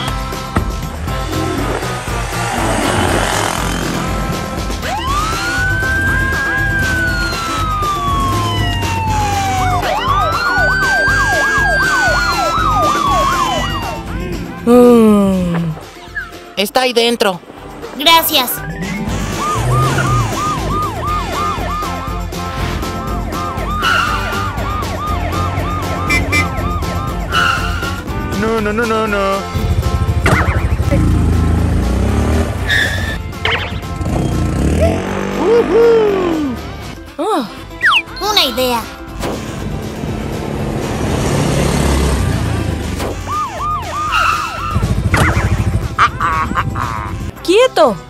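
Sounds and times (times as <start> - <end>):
police siren yelping: 4.8 - 14.2, 18.6 - 22.4, 23.1 - 28.0, 43.1 - 46.4.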